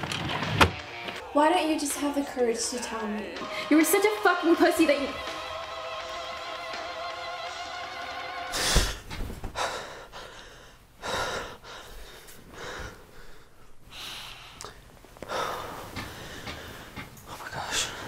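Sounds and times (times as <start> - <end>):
music: 0.0 - 9.1
man gasping: 8.5 - 17.0
man breathing heavily: 8.5 - 18.0.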